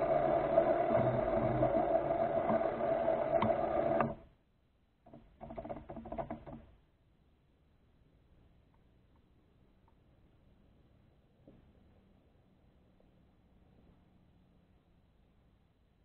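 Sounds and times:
electric motors whining: 0.0s - 4.2s
rattly burst with clicks: 0.0s - 4.2s.

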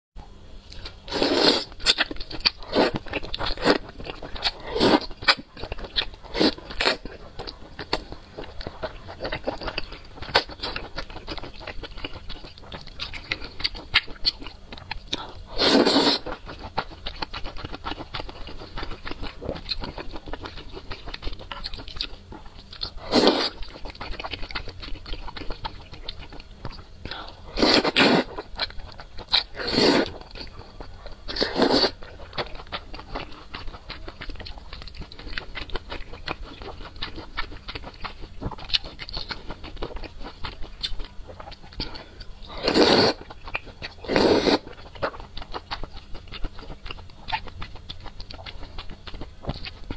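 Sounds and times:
loud noodle slurps: 1.1s - 1.7s, 15.6s - 16.3s, 27.6s - 28.3s, 29.6s - 30.1s, 31.4s - 31.9s, 42.6s - 43.2s, 44.1s - 44.6s
wet chewing and mouth clicks: 1.6s - 49.9s.

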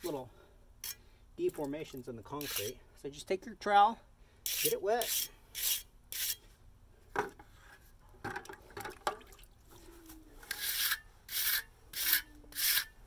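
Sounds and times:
trowel scraping wet concrete: 2.4s - 2.8s, 4.5s - 6.4s, 10.4s - 13.0s
water splashing and dripping: 8.7s - 9.7s.

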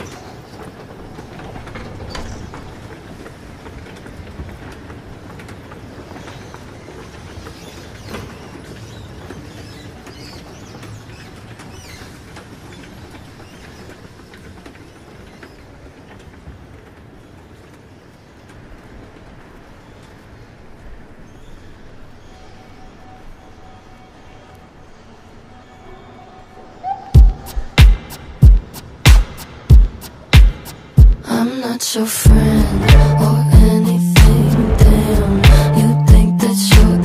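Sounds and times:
steady rumbling: 32.2s - 37.0s.

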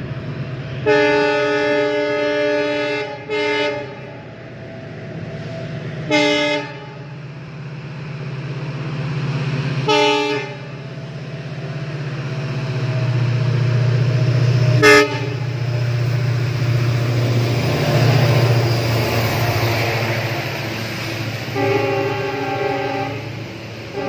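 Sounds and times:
low hum of passing train: 0.0s - 24.0s
locomotive horn: 0.8s - 4.2s, 6.1s - 7.1s, 9.9s - 10.7s, 14.7s - 15.6s, 21.4s - 24.0s.

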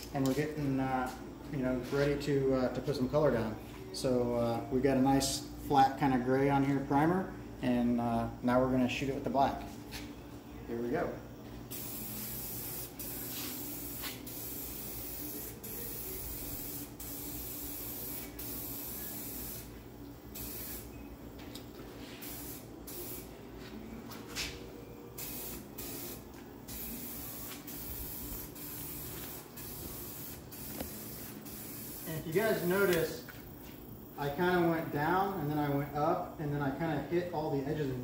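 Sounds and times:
aerosol spray can hissing: 11.7s - 19.7s, 20.4s - 20.9s, 22.2s - 23.3s, 25.2s - 33.0s.

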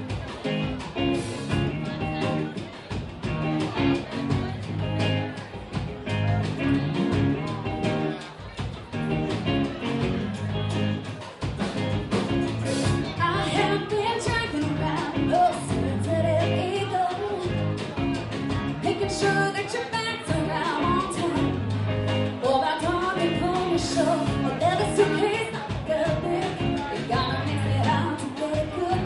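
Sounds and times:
drum kit: 0.0s - 29.0s
electric guitar: 0.0s - 29.0s
woman singing: 12.7s - 17.7s, 18.8s - 21.6s, 22.4s - 29.0s.

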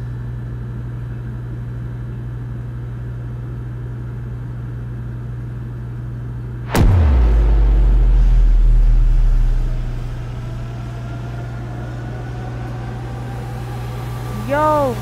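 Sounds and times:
steady low hum: 0.0s - 15.0s
deep sub-bass boom: 6.7s - 14.4s
faint rising tones: 6.7s - 15.0s.

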